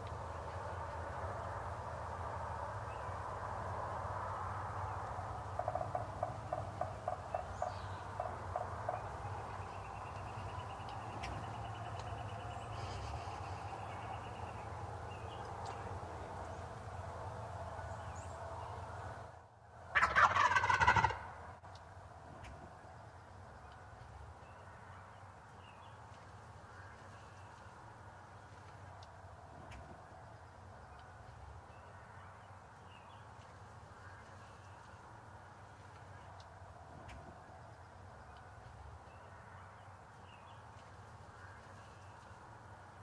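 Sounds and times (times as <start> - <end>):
soft pulsed turkey calls: 5.3 - 16.0, 19.9 - 21.3
turkey gobbling: 5.6 - 9.2, 19.9 - 21.3.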